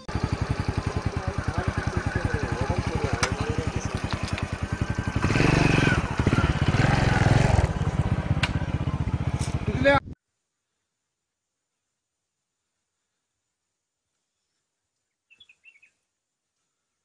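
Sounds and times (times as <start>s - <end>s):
vehicle engine idling: 0.0s - 10.1s.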